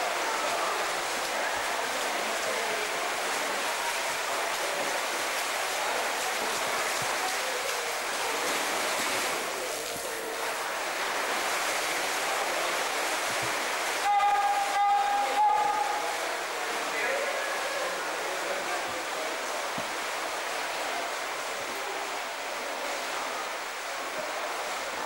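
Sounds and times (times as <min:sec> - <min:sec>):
faint voices: 0:00.0 - 0:25.0
swimmers splashing: 0:00.0 - 0:25.0
loud steady pitched tone: 0:14.0 - 0:16.3.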